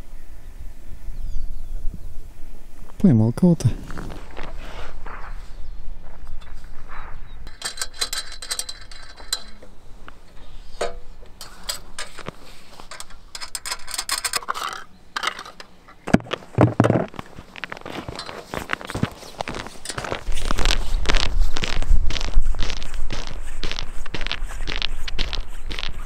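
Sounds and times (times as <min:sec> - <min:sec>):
ice auger metal clicking: 0:07.5 - 0:16.0, 0:17.9 - 0:20.6.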